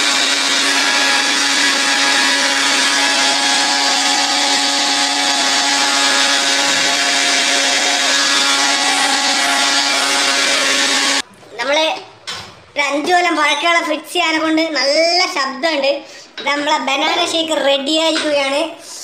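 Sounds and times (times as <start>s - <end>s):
mixer grinder running: 0.0s - 11.2s.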